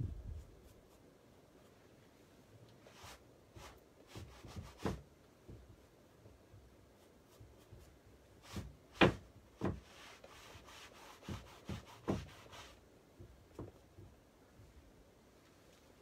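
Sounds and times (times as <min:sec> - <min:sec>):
rubbing on canvas: 0:02.9 - 0:05.0, 0:06.8 - 0:12.8
paint tool scraping canvas: 0:06.9 - 0:12.8.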